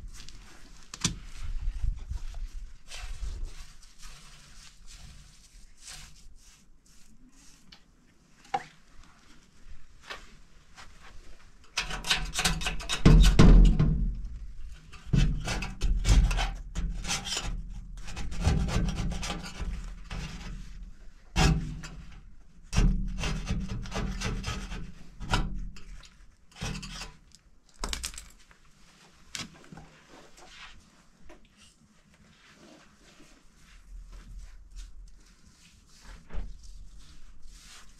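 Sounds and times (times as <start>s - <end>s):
paintbrush strokes on door: 1.3s - 8.4s, 29.9s - 37.9s.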